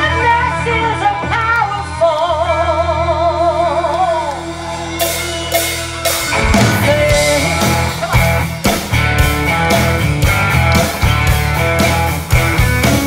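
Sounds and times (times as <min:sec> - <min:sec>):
woman singing with vibrato: 0:00.0 - 0:04.8, 0:06.4 - 0:08.2
guitars: 0:00.0 - 0:13.0.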